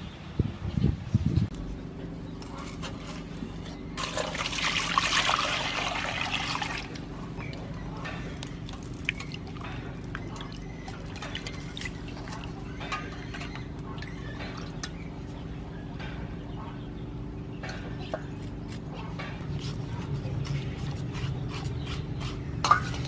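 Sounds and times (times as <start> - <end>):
water splashes and drips: 8.7 - 9.6.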